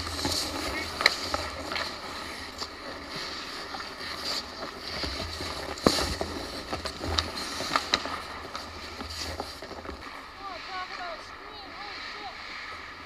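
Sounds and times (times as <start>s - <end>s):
hockey sticks and puck clacking: 0.0s - 10.1s
skates scraping on ice: 0.0s - 13.0s.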